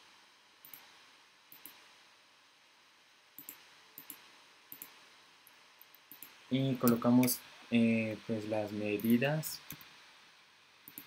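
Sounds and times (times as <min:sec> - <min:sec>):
quiet hiss: 0:00.0 - 0:11.0
computer mouse clicks: 0:00.6 - 0:00.9, 0:01.5 - 0:01.8, 0:03.4 - 0:05.0, 0:05.8 - 0:07.4, 0:09.0 - 0:09.9.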